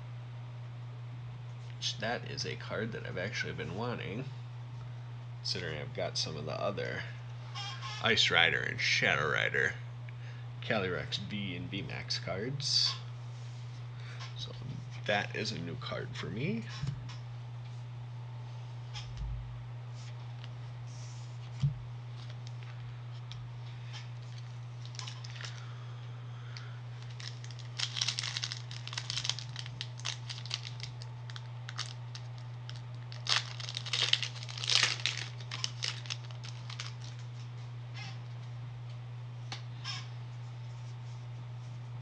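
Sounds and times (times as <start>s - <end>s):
steady low hum: 0.0s - 42.0s
foil wrapper crinkling and tearing: 24.2s - 25.7s, 26.5s - 37.3s.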